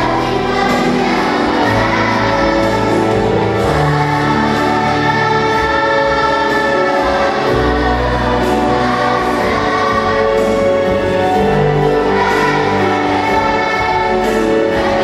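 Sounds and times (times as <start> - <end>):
children's choir singing: 0.0 - 15.0
instrumental accompaniment: 0.0 - 15.0.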